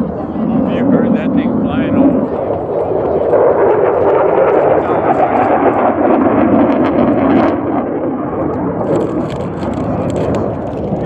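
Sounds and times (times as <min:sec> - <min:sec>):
jet engine roar: 0:00.0 - 0:11.0.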